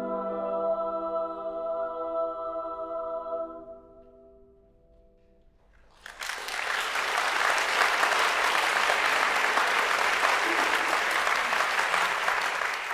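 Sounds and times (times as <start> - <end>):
audience applauding: 5.9 - 12.9.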